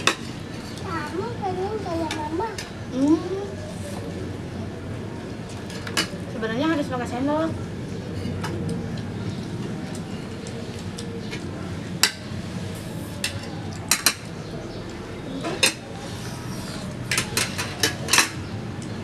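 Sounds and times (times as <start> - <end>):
spoons clinking on plates: 13.2 - 14.3, 15.4 - 15.9, 17.1 - 18.5.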